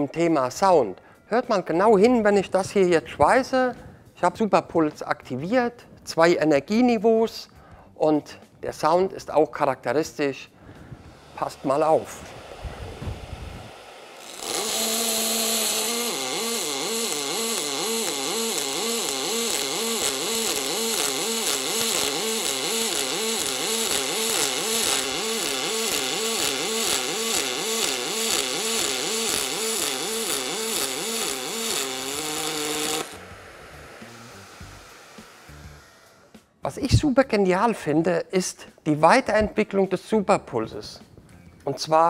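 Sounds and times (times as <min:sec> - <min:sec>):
crackling arc hiss: 0:09.9 - 0:36.9
pulsing welding arc hum: 0:11.0 - 0:36.4.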